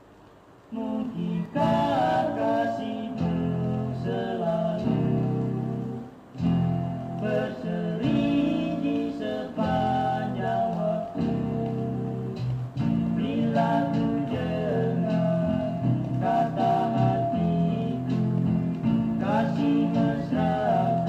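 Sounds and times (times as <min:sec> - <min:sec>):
vinyl groove hiss: 0:00.0 - 0:21.0
guitar pop song: 0:06.4 - 0:21.0.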